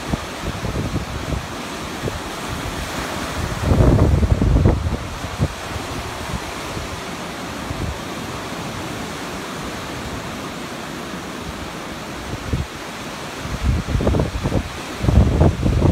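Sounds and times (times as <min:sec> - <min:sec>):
waves breaking on a beach: 0:00.0 - 0:15.9
wind gusts on microphone: 0:00.0 - 0:15.9.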